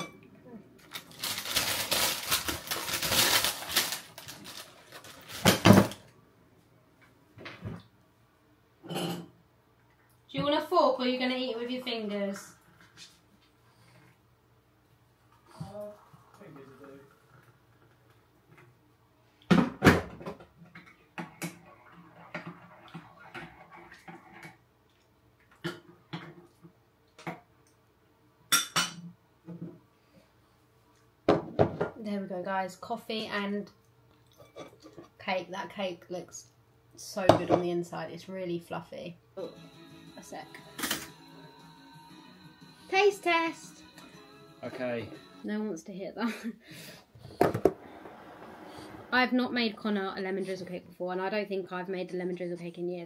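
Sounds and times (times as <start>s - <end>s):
baking paper crinkling: 0.8s - 6.1s
mugs knocking on worktop: 31.3s - 32.0s, 47.4s - 47.8s.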